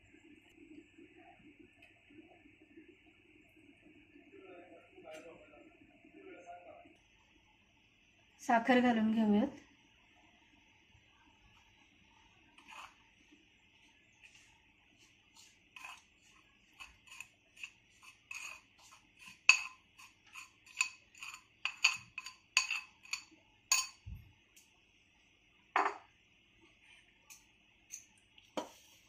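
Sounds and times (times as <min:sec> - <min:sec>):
metal spoon clinking on steel: 0:19.2 - 0:24.0.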